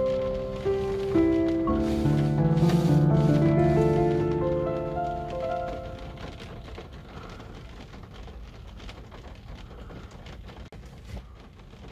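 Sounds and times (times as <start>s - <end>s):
soft music: 0.0s - 6.7s
rain pattering on windshield: 0.0s - 11.9s.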